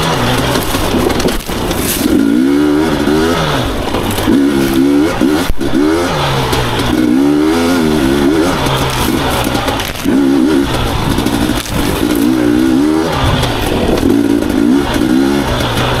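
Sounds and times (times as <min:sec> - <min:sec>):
two-stroke engine revving: 0:00.0 - 0:16.0.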